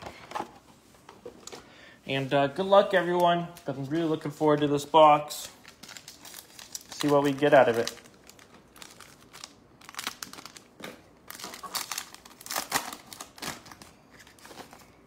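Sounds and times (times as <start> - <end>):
plastic wrapper crinkling and tearing: 5.4 - 14.9.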